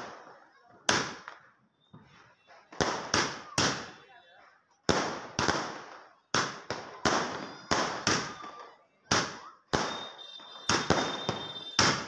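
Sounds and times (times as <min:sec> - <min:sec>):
fireworks bangs with echo: 0:00.0 - 0:04.1, 0:04.9 - 0:12.0
thin high whistle: 0:09.9 - 0:12.0.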